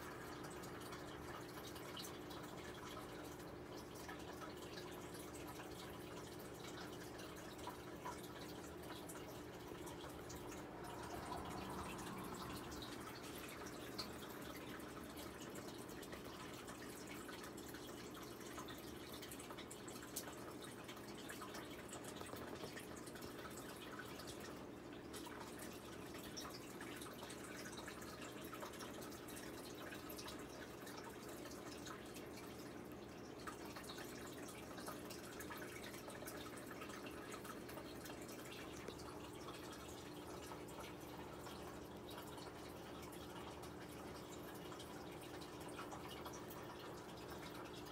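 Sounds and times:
water dripping and trickling: 0:00.0 - 0:47.9.

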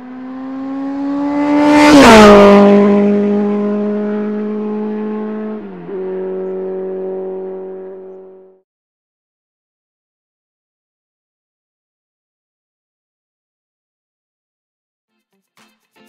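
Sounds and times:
vehicle engine passing by: 0:00.0 - 0:08.6.

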